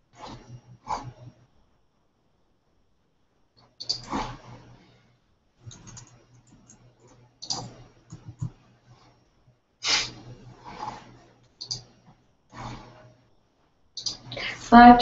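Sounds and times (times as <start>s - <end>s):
typing on keyboard: 5.7s - 6.8s.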